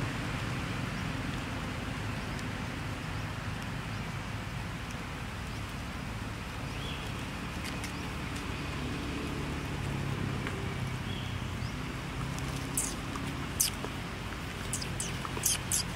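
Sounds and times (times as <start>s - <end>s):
low engine-like hum: 0.0s - 15.9s
short high chirp: 12.8s - 13.0s, 14.7s - 15.9s.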